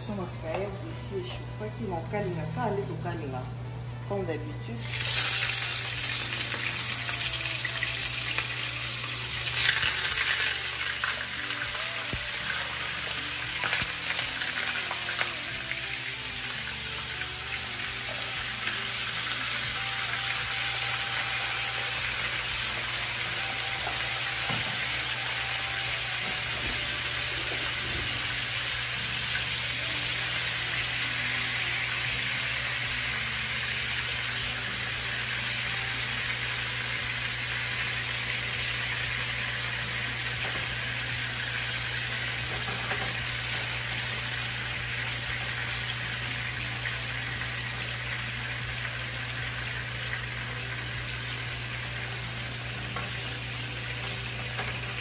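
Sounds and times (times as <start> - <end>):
fish sizzling in hot oil: 4.8 - 55.0.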